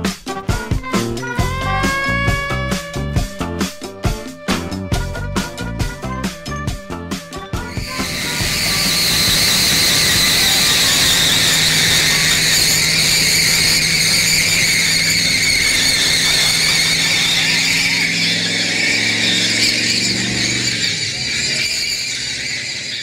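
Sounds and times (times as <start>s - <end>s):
tyres squealing: 0.1s - 23.0s
car engine revving high: 7.6s - 23.0s.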